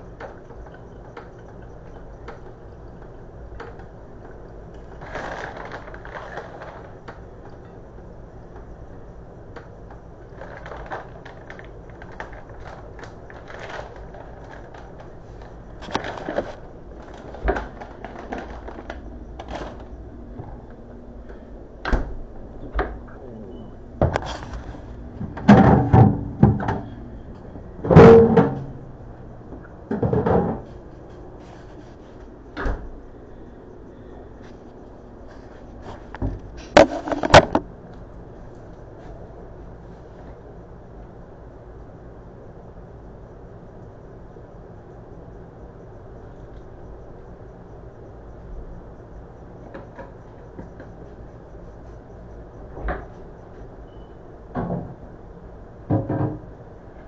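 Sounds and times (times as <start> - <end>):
loud thuds and clunks: 24.0 - 27.0, 27.8 - 28.8, 36.0 - 37.7, 55.9 - 56.4.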